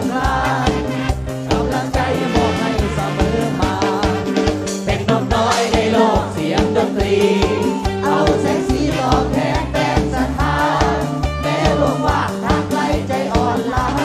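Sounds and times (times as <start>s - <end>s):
live band music with steady beat: 0.0s - 14.0s
woman singing into a microphone: 5.0s - 10.9s.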